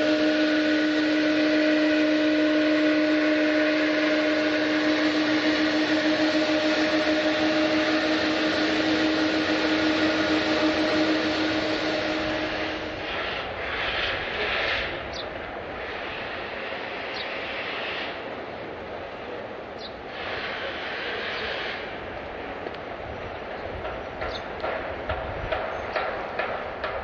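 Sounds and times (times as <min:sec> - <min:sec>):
jet engine high whine: 0:00.0 - 0:18.8
jet engines rushing: 0:00.0 - 0:27.0.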